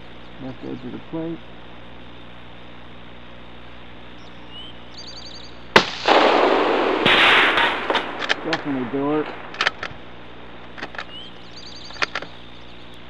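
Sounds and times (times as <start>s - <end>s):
loud noise: 5.6s - 12.2s
rifle shot crack: 5.7s - 10.9s.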